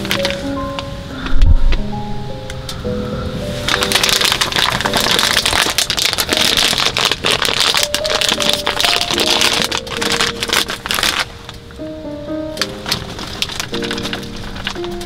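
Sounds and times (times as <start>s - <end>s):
dense crackling clicks: 0.0s - 2.8s, 3.7s - 15.0s
background music with held notes: 0.0s - 15.0s.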